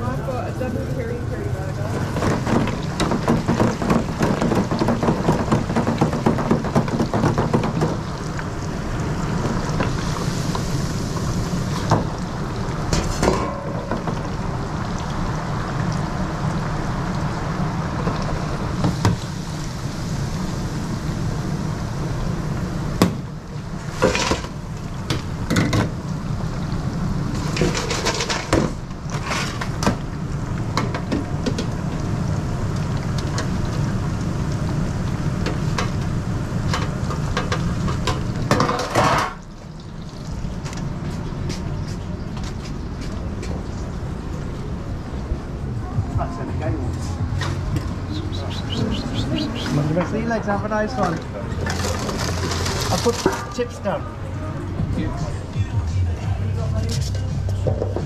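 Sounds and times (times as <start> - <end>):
oil crackling and sizzling: 0.0 - 45.7, 46.9 - 54.0
metal fryer baskets clanking: 1.7 - 8.2, 12.9 - 14.5, 27.4 - 30.0, 36.7 - 39.4, 49.8 - 53.7.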